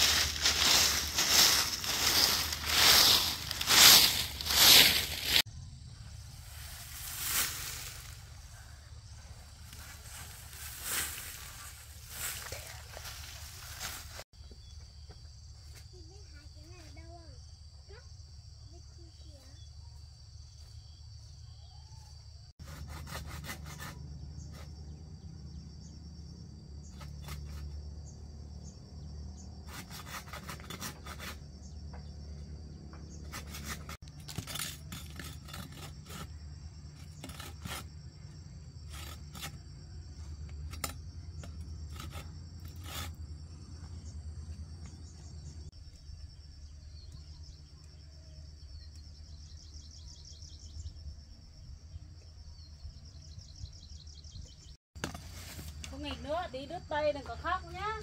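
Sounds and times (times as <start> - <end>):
rapid scraping strokes: 0.0 - 5.4
insects chirring: 0.0 - 58.0.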